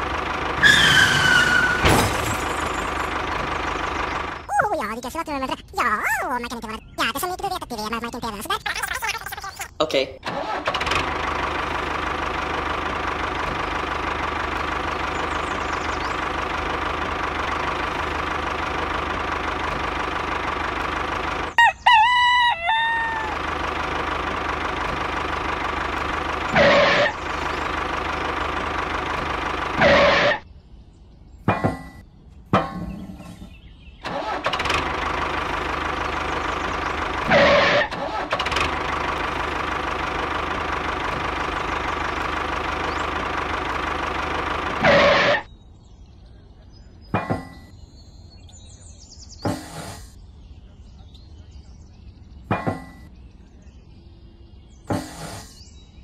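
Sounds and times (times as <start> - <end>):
tractor engine running: 0.0 - 30.5, 31.4 - 45.5, 47.0 - 48.7, 49.3 - 50.2, 51.9 - 53.2, 54.5 - 55.9
rooster crowing: 21.6 - 23.4.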